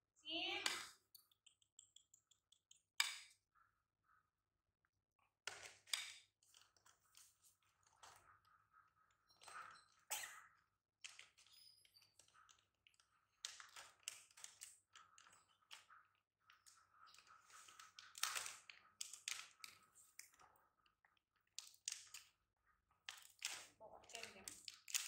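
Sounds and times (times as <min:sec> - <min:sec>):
plastic cup and lid crinkling: 0:16.6 - 0:20.4, 0:23.1 - 0:25.0.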